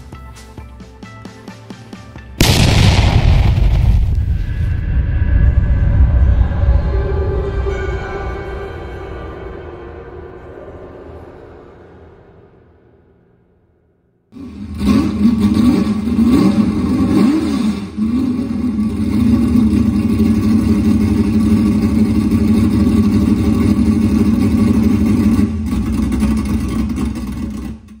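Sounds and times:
engine revving: 0:14.4 - 0:28.0.

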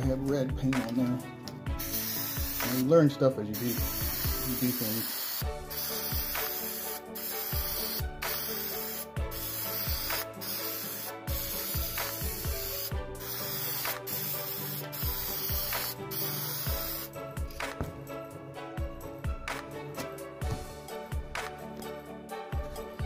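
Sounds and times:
spray paint can hissing: 0:01.8 - 0:02.9, 0:03.5 - 0:17.7.

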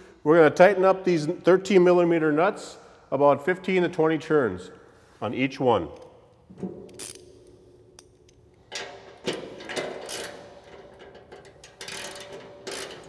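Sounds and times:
ratcheting wrench clicking: 0:06.8 - 0:13.0.

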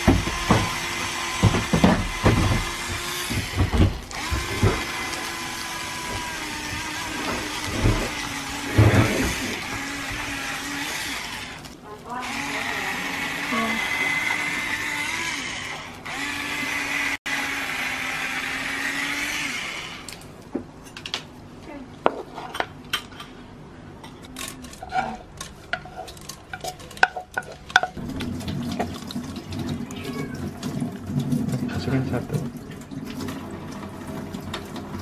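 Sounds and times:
electric grinder whirring: 0:00.0 - 0:20.2
liquid pouring into plastic cup: 0:28.0 - 0:35.0.

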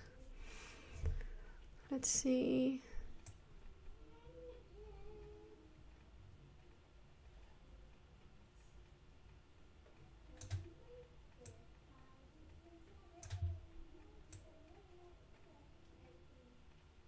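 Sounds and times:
computer mouse clicks: 0:10.3 - 0:11.6, 0:13.2 - 0:13.6.

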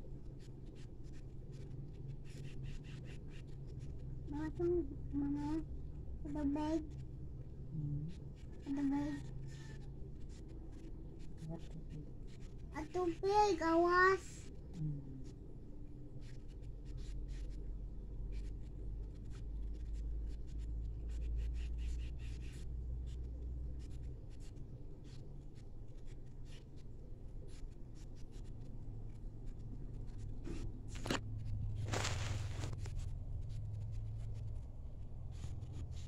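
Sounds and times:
clicks and rustles of handling: 0:30.3 - 0:33.8.

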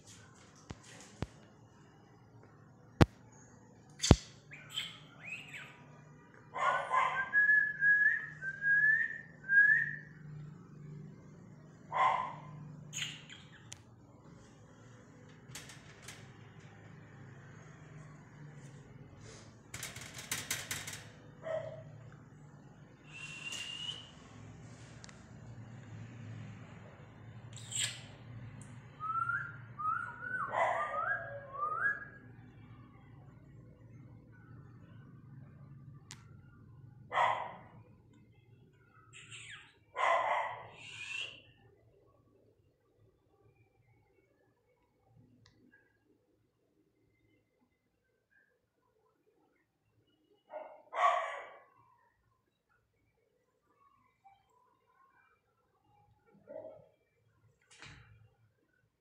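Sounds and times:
sharp click: 0:04.0 - 0:04.4
short rising whistled notes: 0:23.1 - 0:24.2
parakeets chattering: 0:39.2 - 0:39.8.

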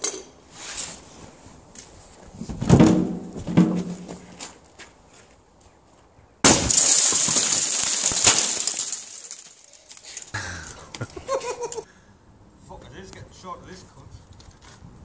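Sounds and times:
airbag bang: 0:06.4 - 0:08.8
glass breaking and clinking: 0:06.5 - 0:10.0.

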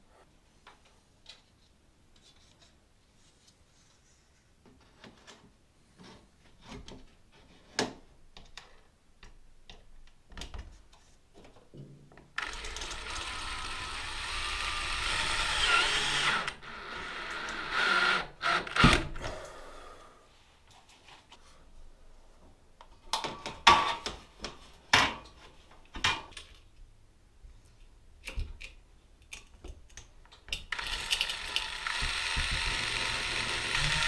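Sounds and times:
handheld power tool running: 0:12.4 - 0:19.1, 0:30.7 - 0:34.0.

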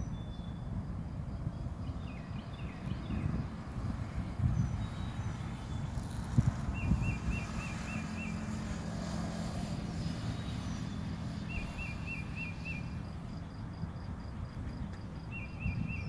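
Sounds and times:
bird chirping: 0:00.0 - 0:00.7, 0:04.5 - 0:08.5, 0:10.1 - 0:13.2, 0:15.2 - 0:16.0
low rumble of road traffic: 0:00.0 - 0:16.0.

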